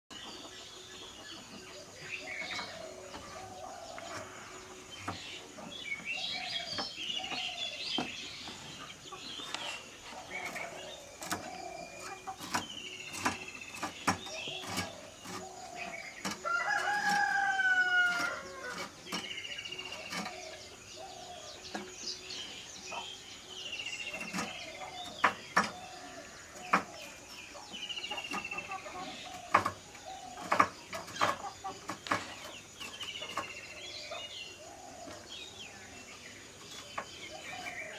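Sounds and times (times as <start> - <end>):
chickens clucking: 0.1 - 37.9
small birds chirping: 0.1 - 37.9
rooster crowing: 16.4 - 18.8.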